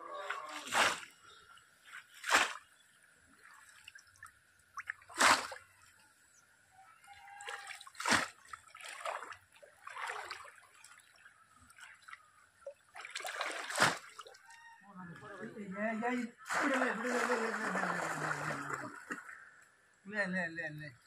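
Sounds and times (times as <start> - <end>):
water sloshing from wading: 0.1 - 6.3, 6.9 - 14.8, 16.4 - 19.6
fish trap splashing into water: 2.2 - 2.7, 4.8 - 5.6, 7.5 - 10.6, 12.9 - 14.4, 16.5 - 19.3.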